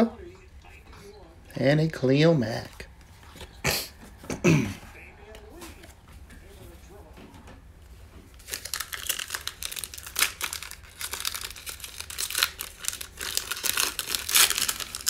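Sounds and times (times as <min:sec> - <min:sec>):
foil wrapper crinkling: 0:08.3 - 0:15.0.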